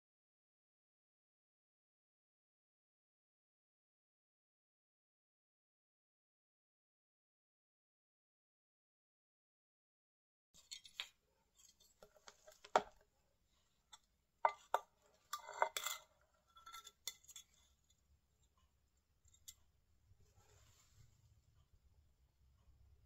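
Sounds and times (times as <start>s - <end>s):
palette knife clinking and scraping: 10.6s - 18.6s, 19.2s - 19.7s.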